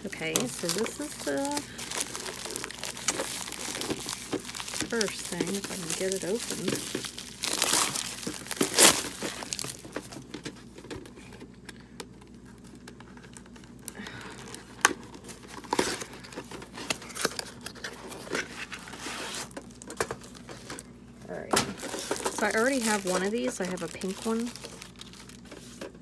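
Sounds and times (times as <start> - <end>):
packaging crinkling and tearing: 0.0 - 10.8, 12.3 - 20.9, 21.6 - 26.0
cardboard box crackles and clicks: 0.1 - 11.6.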